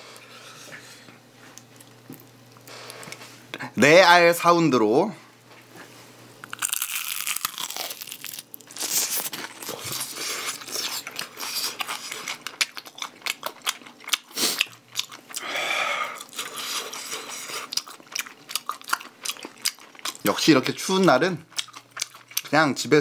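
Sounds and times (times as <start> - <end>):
crunching fried chicken: 6.4 - 15.5, 16.1 - 22.9.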